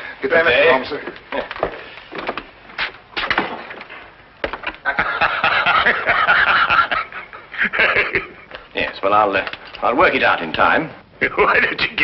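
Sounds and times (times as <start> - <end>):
footsteps and knocks: 1.0 - 4.8.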